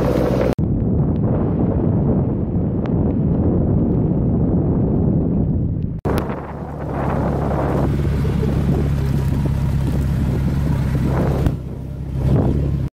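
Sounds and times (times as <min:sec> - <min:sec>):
truck engine running: 0:00.0 - 0:00.6, 0:06.1 - 0:12.9
wind noise on microphone: 0:00.0 - 0:12.9.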